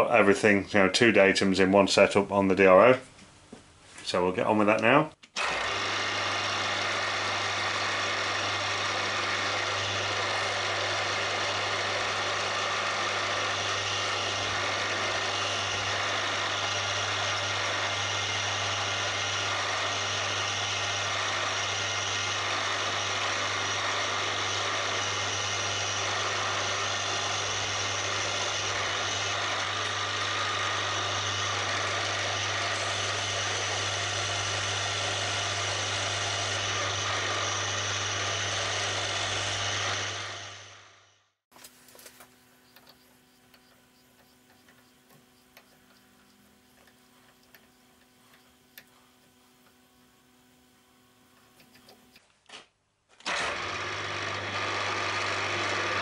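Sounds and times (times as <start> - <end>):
drill bit drilling into metal: 5.4 - 40.7, 53.2 - 56.0
milling machine spindle humming: 5.4 - 41.0, 41.8 - 52.2, 53.3 - 56.0.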